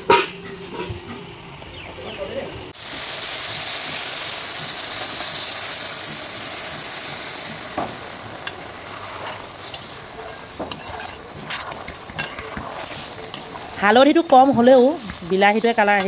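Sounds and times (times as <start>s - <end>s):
steady sizzle: 2.7s - 16.0s
water hissing in hot pan: 2.8s - 16.0s
ladle scraping against pan: 8.4s - 15.2s.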